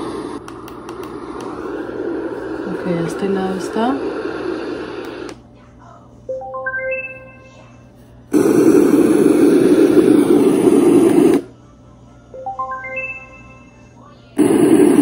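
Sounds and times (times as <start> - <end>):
steady white noise: 0.0 - 5.4, 8.3 - 11.5, 14.4 - 15.0.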